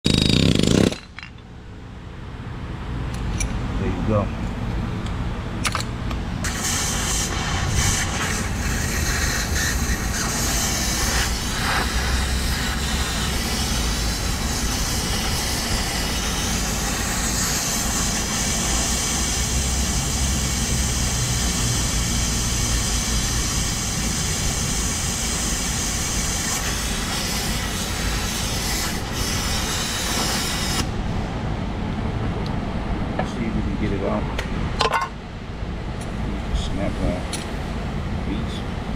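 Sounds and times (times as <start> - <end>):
cutting torch flame hissing: 6.4 - 30.9.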